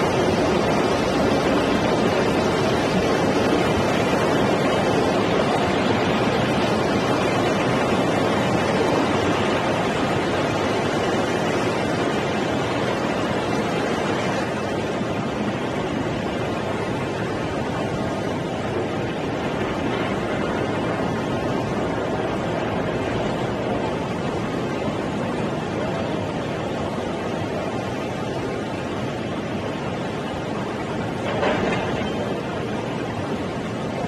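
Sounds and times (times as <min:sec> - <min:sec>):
floodwater pouring over a wall: 0:00.0 - 0:25.6.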